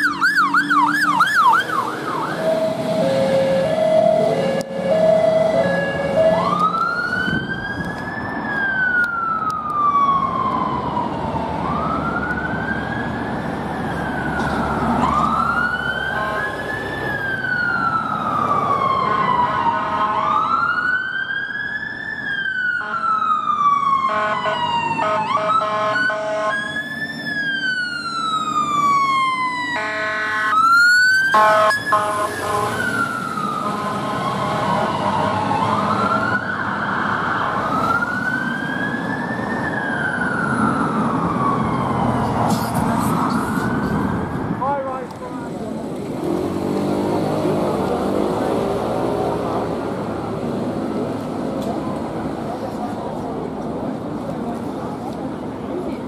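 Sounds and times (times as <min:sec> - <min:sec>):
fire engine sirens wailing: 0:00.0 - 0:56.0
harsh bullhorn honk: 0:24.1 - 0:26.6, 0:29.8 - 0:30.5, 0:31.4 - 0:32.8, 0:33.6 - 0:35.4.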